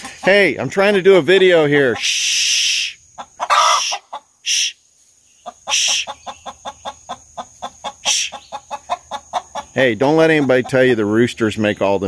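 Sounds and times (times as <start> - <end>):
hen clucking: 0.0 - 4.7, 5.3 - 11.1
hen squawking: 1.3 - 4.8, 5.4 - 10.8.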